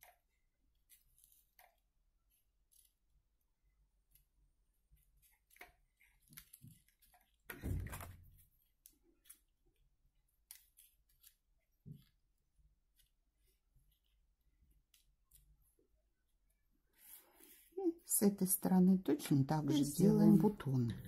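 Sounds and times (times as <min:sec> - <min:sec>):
paper rustling: 0:04.9 - 0:15.6.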